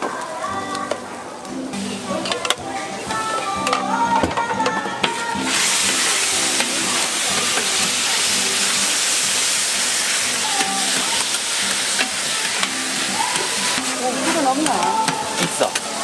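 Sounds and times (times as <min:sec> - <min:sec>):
food sizzling on a griddle: 0:00.0 - 0:16.0
metal spatulas scraping steel: 0:10.5 - 0:15.8.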